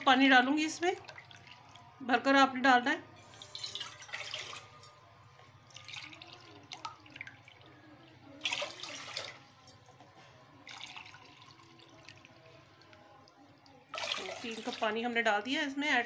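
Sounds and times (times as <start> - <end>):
water pouring into pot: 0.5 - 2.0, 3.1 - 9.6, 10.6 - 15.1.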